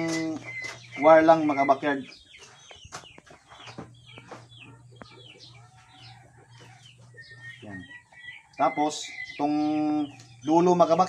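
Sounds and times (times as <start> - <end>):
chickens clucking: 0.0 - 11.0.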